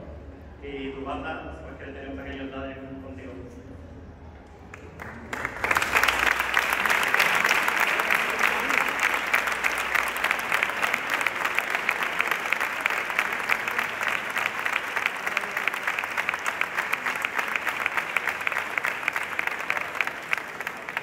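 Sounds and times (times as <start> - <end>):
audience applause: 4.7 - 21.0.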